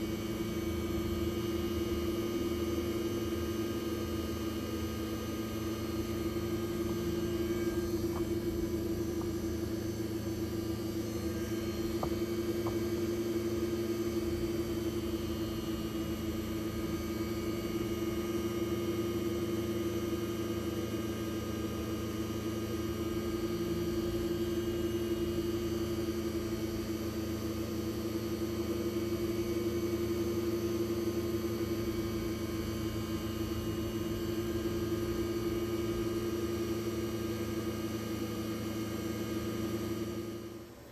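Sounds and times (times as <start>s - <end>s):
machine spindle humming: 0.0s - 18.5s.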